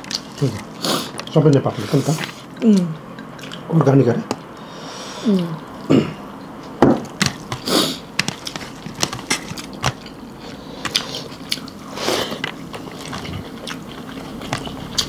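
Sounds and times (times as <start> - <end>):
person chewing food: 0.0 - 3.7, 6.7 - 15.0.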